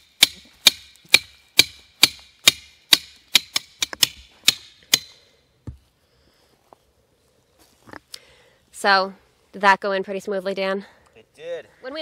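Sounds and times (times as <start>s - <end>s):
hammer striking metal post: 0.2s - 5.2s.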